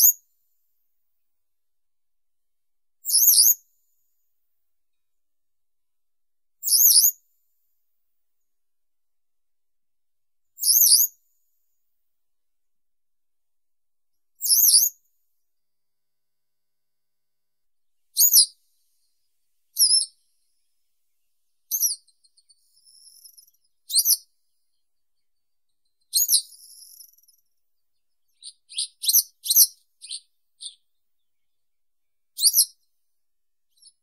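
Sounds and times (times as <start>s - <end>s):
bird singing high sharp notes: 28.3s - 30.8s.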